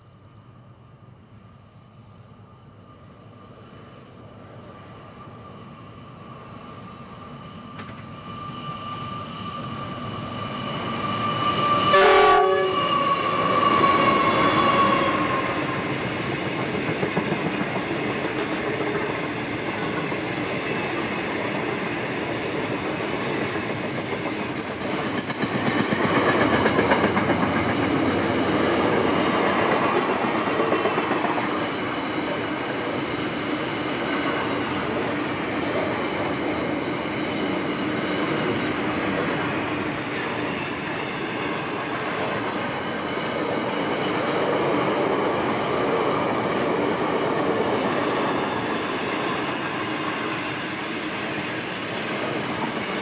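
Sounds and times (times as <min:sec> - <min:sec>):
locomotive whine: 0:02.0 - 0:16.8, 0:17.8 - 0:44.4
brief high squeal: 0:08.2 - 0:15.6, 0:23.4 - 0:26.0.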